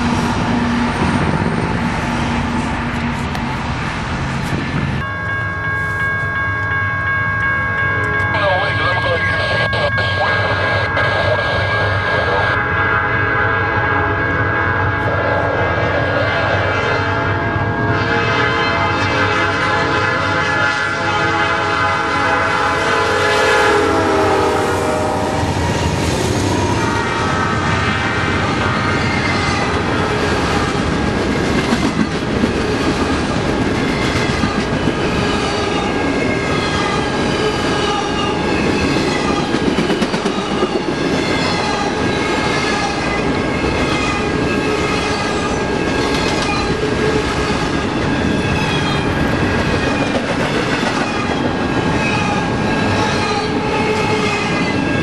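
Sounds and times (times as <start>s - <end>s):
diesel locomotive passing: 0.0s - 55.0s
locomotive horn blowing: 8.0s - 25.6s, 26.6s - 28.5s.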